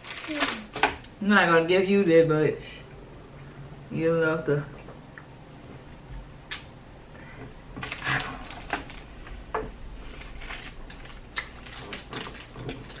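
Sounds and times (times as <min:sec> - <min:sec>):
candy wrappers crinkling: 0:00.0 - 0:00.8, 0:10.0 - 0:13.0.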